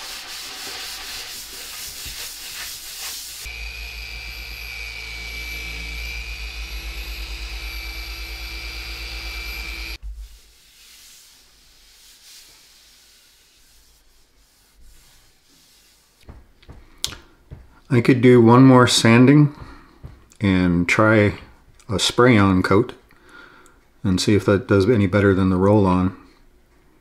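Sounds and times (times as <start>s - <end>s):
orbital polisher motor whine: 3.4s - 10.0s
hand rubbing polished surface: 8.7s - 17.0s.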